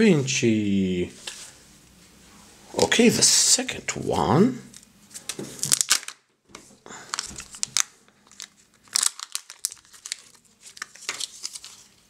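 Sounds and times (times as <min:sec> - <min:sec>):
foil and plastic crinkling: 0:05.1 - 0:06.2, 0:06.9 - 0:12.0.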